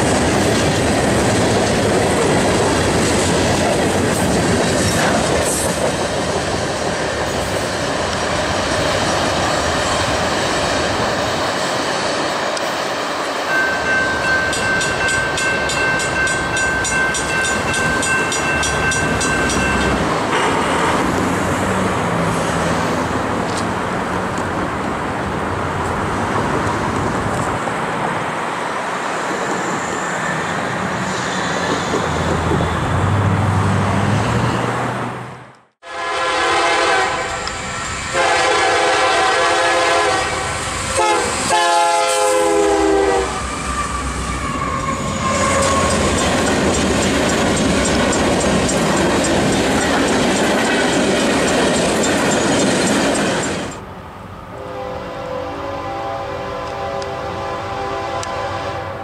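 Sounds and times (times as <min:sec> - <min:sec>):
train rumble: 0:00.0 - 0:59.0
train wheels clattering: 0:13.5 - 0:20.8, 0:45.3 - 0:53.8
locomotive air horn blasts: 0:20.3 - 0:21.2, 0:35.8 - 0:44.1, 0:54.6 - 0:59.0.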